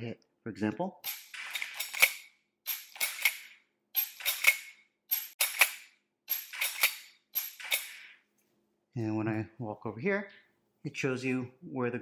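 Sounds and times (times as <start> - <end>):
rifle lever and hammer clacks: 1.1 - 8.1.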